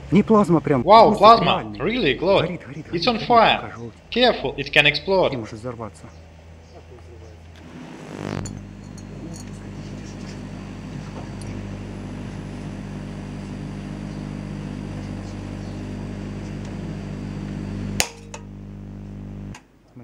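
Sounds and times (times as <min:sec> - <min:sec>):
transformer humming: 0:07.6 - 0:19.6.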